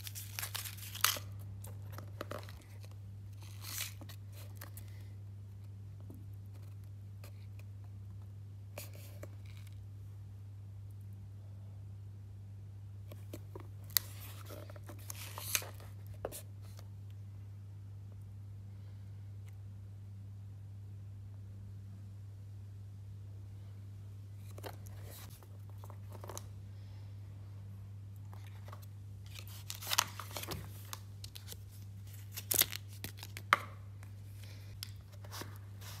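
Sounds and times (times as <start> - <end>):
steady low hum: 15.8 - 32.5.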